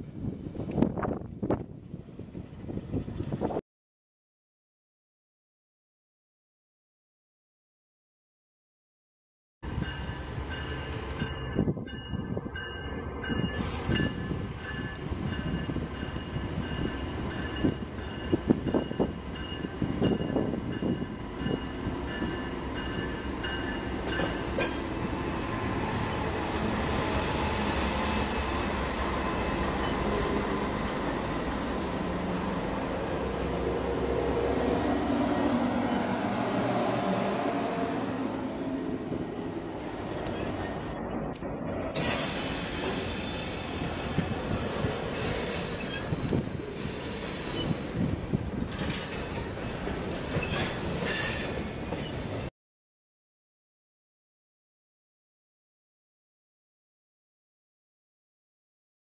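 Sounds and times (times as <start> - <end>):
railroad crossing bell ringing: 9.7 - 24.7
wheel and rail noise: 9.7 - 52.5
wheel squeal: 45.2 - 48.1, 48.8 - 52.5.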